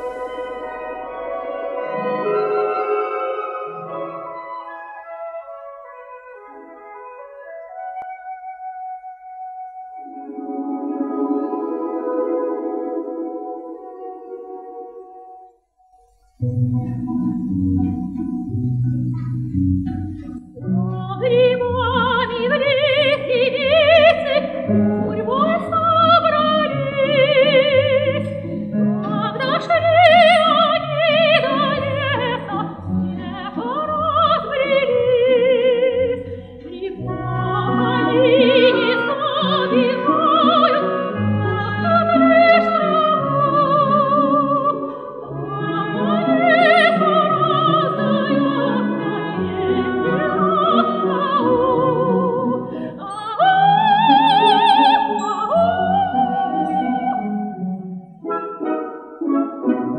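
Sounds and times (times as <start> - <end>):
folk instrument orchestra: 0.0 - 15.5, 16.4 - 59.9
woman singing operatically: 19.1 - 28.4, 29.0 - 57.5.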